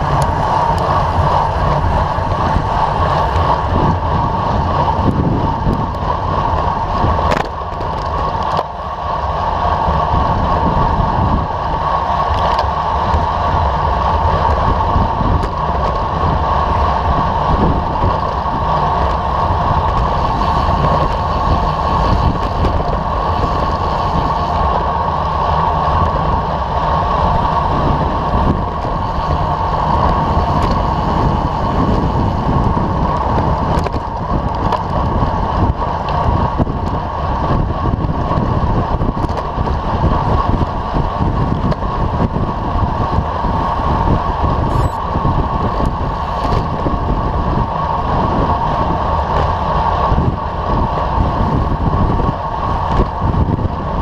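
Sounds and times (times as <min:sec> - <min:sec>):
wind rushing on microphone: 0:00.0 - 0:54.0.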